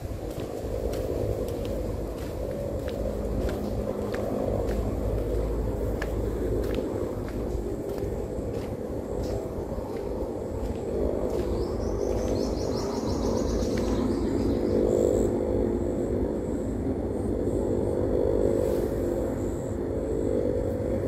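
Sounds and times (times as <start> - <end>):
low microphone rumble: 0.0 - 21.0
mechanical engine hum: 0.0 - 21.0
bird chirping: 11.2 - 15.2.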